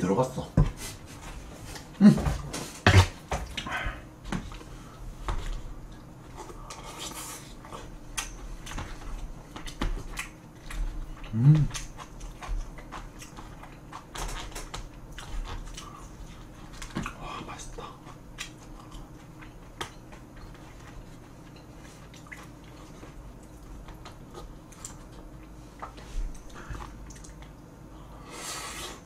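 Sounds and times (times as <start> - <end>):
light chewing: 5.3 - 28.1.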